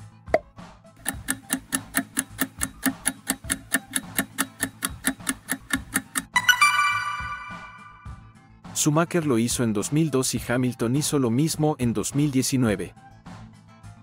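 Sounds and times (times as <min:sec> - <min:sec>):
low music bed: 0:00.0 - 0:08.4
countdown timer ticking: 0:01.0 - 0:08.2
bright chime: 0:06.4 - 0:08.2.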